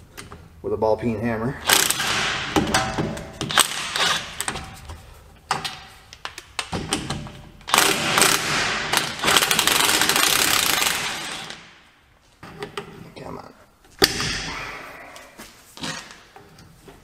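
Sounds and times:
impact wrench hammering: 0:01.6 - 0:04.6, 0:06.7 - 0:11.7.

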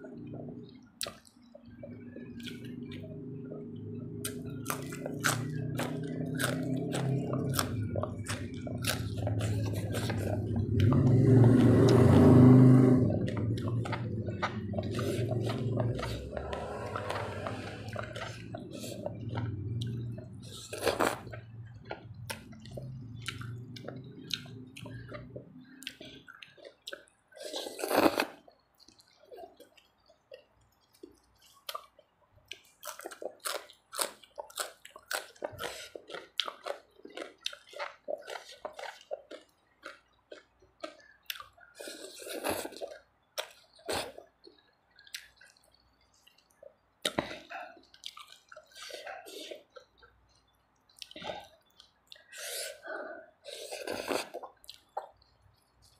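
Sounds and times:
low steady hum: 0:00.0 - 0:35.9
wet chewing and slurping: 0:00.1 - 0:55.9
crunchy bites of vegetables: 0:04.2 - 0:11.0.

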